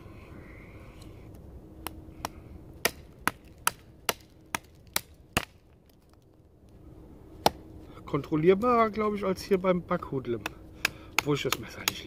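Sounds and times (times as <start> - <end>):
knife chopping wood: 1.8 - 5.6, 7.4 - 7.6, 10.3 - 12.0.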